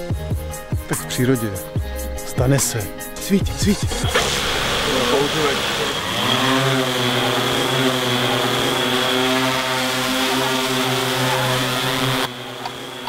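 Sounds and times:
drone propellers buzzing: 3.4s - 13.0s.

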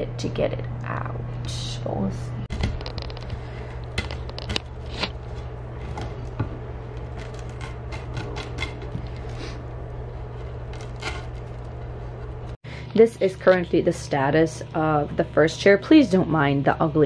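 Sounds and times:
steady low hum: 0.0s - 17.0s
dry cane strands crackling and snapping: 2.6s - 9.6s, 10.2s - 12.6s.

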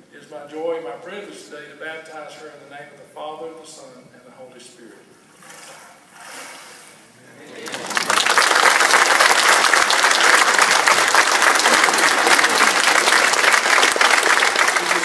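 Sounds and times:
congregation applauding: 7.6s - 15.0s.

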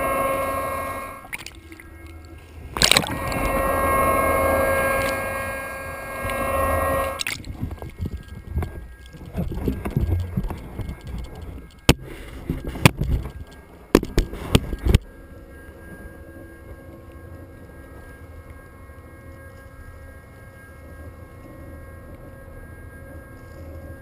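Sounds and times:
ship machinery hum: 0.0s - 24.0s.

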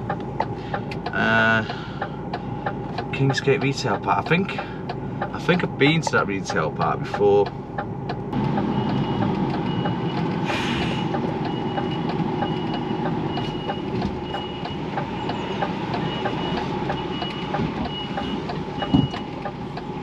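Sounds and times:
faint regular ticking: 0.0s - 10.3s, 11.1s - 20.0s
diesel engine running: 0.0s - 20.0s
reversing alarm beeps: 8.6s - 10.2s, 11.4s - 19.4s.

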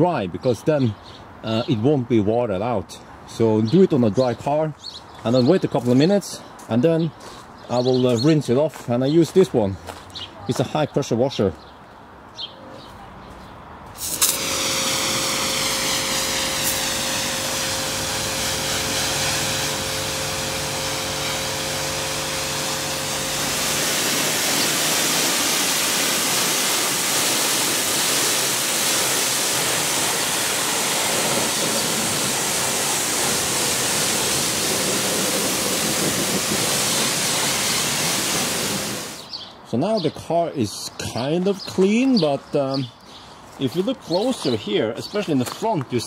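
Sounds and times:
water jet hissing on car: 14.0s - 39.2s
pressure washer motor humming: 14.0s - 39.3s.

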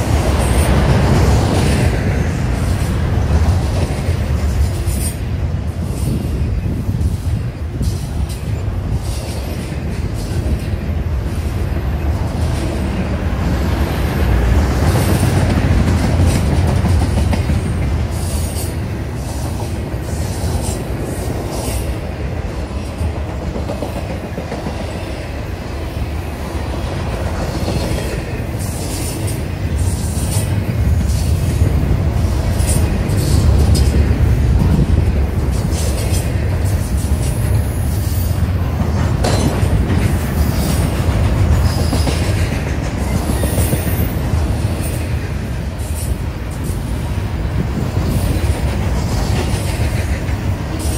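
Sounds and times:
freight train wheels rumbling: 0.0s - 50.9s.

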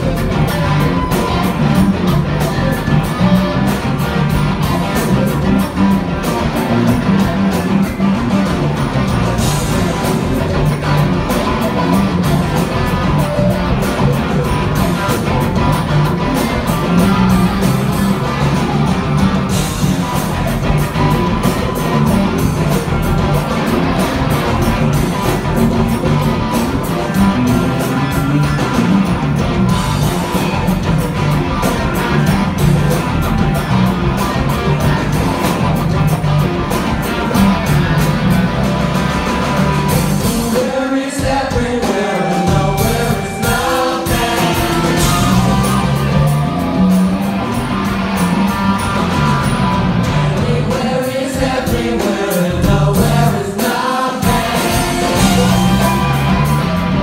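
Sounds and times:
bass guitar: 0.0s - 57.0s
drum kit: 0.0s - 57.0s
electric guitars: 0.0s - 57.0s.

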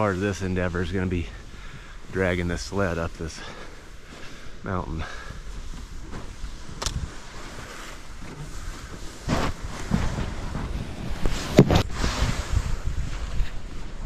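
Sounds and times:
sled scraping through snow: 0.0s - 14.0s
wind on microphone: 5.5s - 14.0s
sled knocks: 9.2s - 11.9s.

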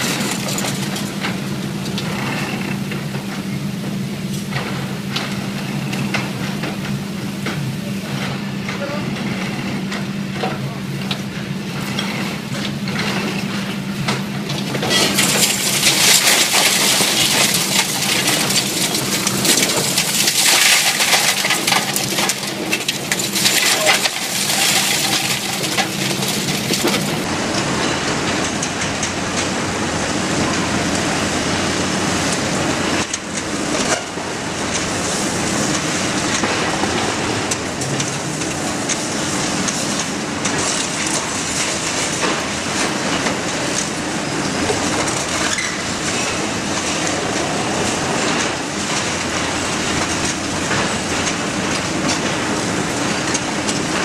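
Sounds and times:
concrete breaking and rubble falling: 0.0s - 1.3s, 14.7s - 27.3s
excavator running: 0.0s - 54.0s
rumble of demolition debris: 0.0s - 54.0s.

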